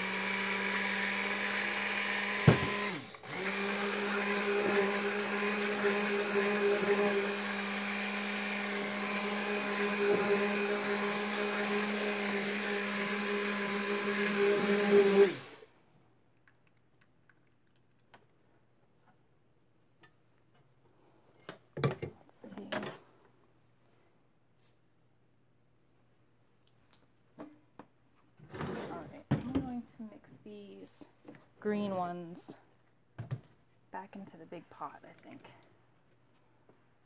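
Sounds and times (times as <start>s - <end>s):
stick blender motor hum: 0.0s - 15.7s.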